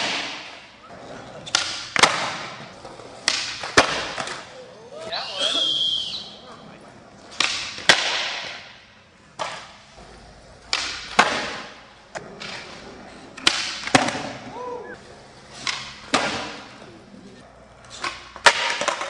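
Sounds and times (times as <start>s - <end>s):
skateboard pops and clacks: 0.0s - 0.6s, 1.4s - 2.6s, 3.2s - 4.5s, 7.3s - 8.7s, 9.4s - 9.8s, 10.6s - 12.8s, 13.4s - 14.4s, 15.6s - 16.6s, 18.0s - 19.0s.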